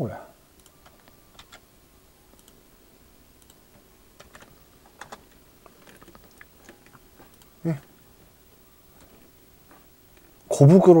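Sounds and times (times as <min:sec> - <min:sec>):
keyboard keys clicking: 0:00.6 - 0:01.6, 0:04.2 - 0:07.5.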